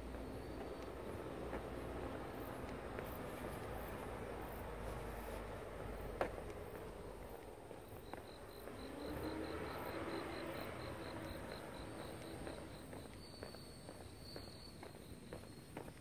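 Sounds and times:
faint hiss of insects: 0:00.0 - 0:16.0
insect high-pitched pulse: 0:07.8 - 0:15.7.

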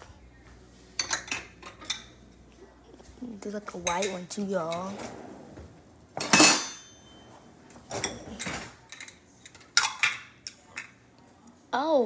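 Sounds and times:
kitchen utensils clattering: 0:01.0 - 0:02.2, 0:03.7 - 0:05.3, 0:06.2 - 0:11.0.

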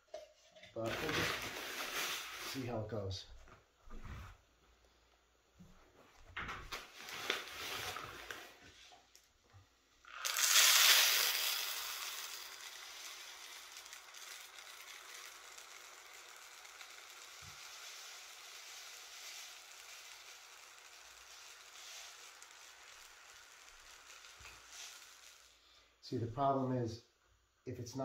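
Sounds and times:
granules pouring through funnel: 0:00.8 - 0:02.9, 0:06.7 - 0:08.9, 0:10.0 - 0:26.2.

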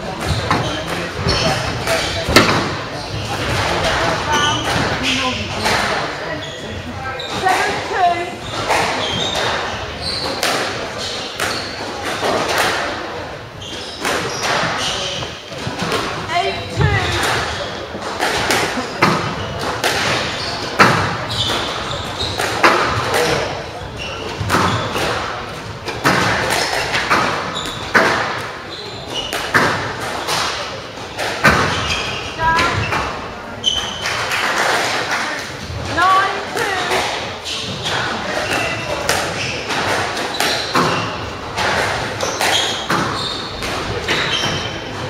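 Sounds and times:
squash ball hitting rackets and walls: 0:00.0 - 0:06.4, 0:07.2 - 0:45.0
shoes squeaking on wooden floor: 0:00.0 - 0:12.6, 0:13.5 - 0:30.4, 0:31.4 - 0:34.8, 0:35.7 - 0:45.0.

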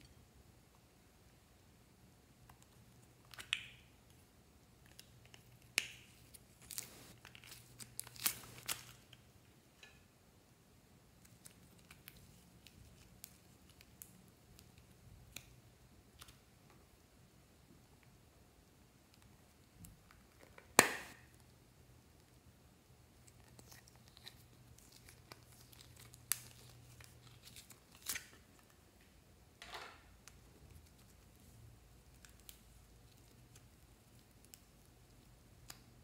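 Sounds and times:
clay crackling as pulled apart: 0:04.8 - 0:09.2, 0:23.2 - 0:28.8.

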